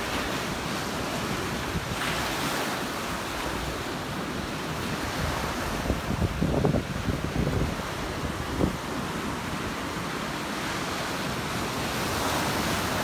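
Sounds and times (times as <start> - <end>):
surf waves breaking on sand: 0.0 - 13.0
wind on microphone: 3.4 - 10.2.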